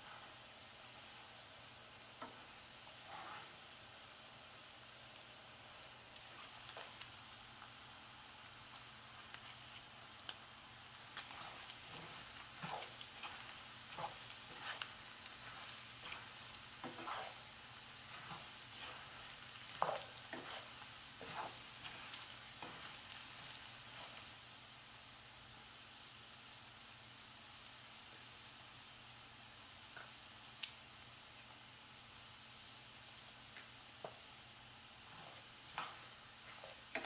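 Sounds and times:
meat sizzling in bubbling oil: 0.0s - 37.0s
spatula scraping and knocking pan: 3.0s - 3.5s, 11.2s - 24.2s, 35.1s - 37.0s.

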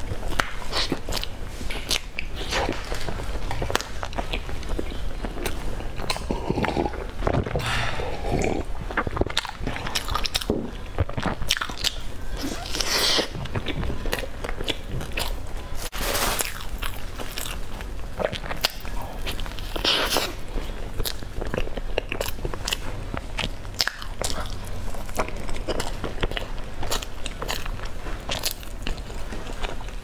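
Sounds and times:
crunchy snack chewing: 8.2s - 30.0s.

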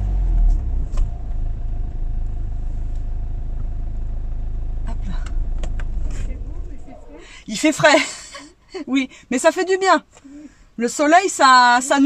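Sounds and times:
car engine low rumble: 0.0s - 8.4s.

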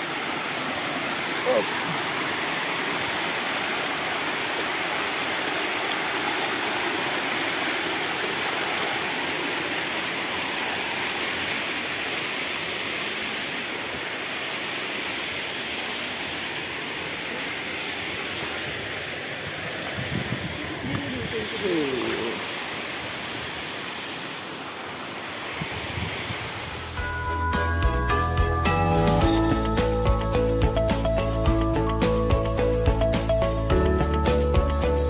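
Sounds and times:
stream rushing over rocks: 0.0s - 27.2s.

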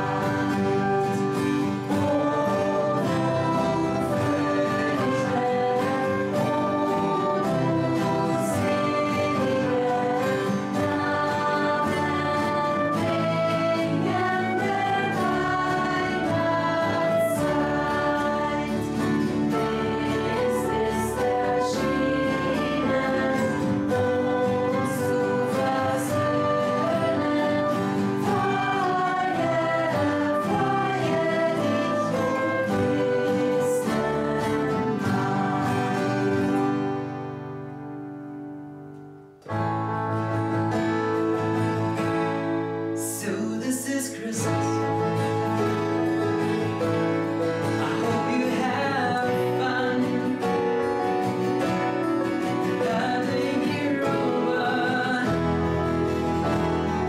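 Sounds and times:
girls singing together: 0.0s - 36.9s
flute: 0.0s - 37.6s, 44.4s - 57.0s.

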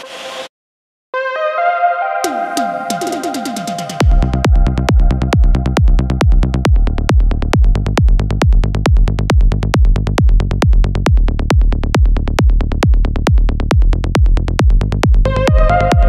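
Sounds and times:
psytrance dance music: 2.3s - 11.6s, 14.7s - 16.0s
kick drum: 4.0s - 16.0s
pulsing bass: 4.0s - 16.0s.

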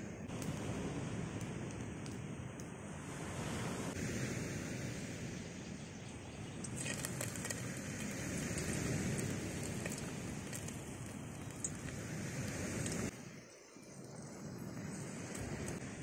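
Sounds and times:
wind: 0.0s - 16.0s
frying oil crackling and popping: 6.6s - 13.2s, 13.9s - 15.8s.

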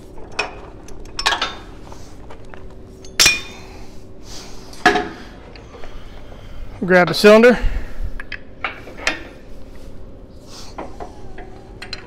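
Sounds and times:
steel pins clinking on metal: 0.2s - 1.8s, 3.0s - 3.7s.

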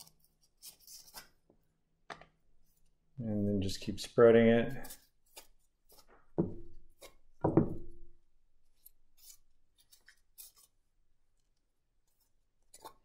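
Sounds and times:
knife scraping cardboard tube: 4.7s - 7.4s, 8.6s - 10.9s.

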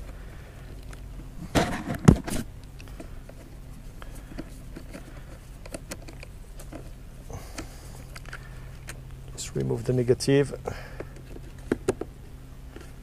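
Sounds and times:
loud bump and rustle: 1.4s - 2.5s.

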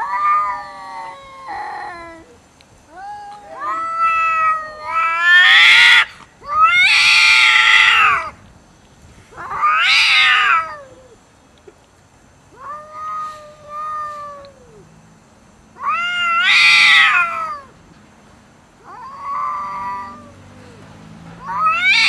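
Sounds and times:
cats yowling: 0.0s - 8.4s, 9.3s - 11.2s, 12.5s - 14.9s, 15.8s - 17.8s, 18.8s - 20.8s, 21.4s - 22.0s.

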